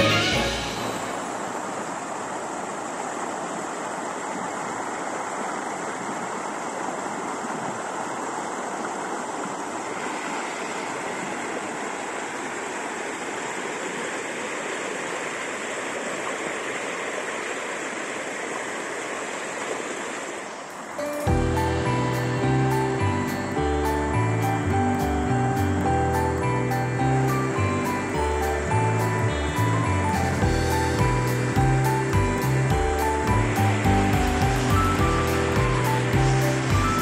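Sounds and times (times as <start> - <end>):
flowing water: 0.0 - 37.0.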